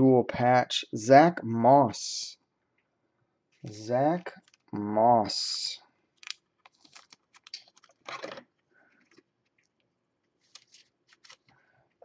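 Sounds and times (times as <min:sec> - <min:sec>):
plastic sleeve rustling: 0:03.6 - 0:04.8, 0:06.2 - 0:12.0
cards and plastic sleeve clicking: 0:04.4 - 0:04.7, 0:06.2 - 0:08.4, 0:10.4 - 0:11.5.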